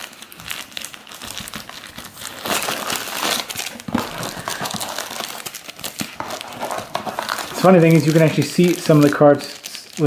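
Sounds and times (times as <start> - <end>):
wax paper packs crinkling: 0.0 - 10.0.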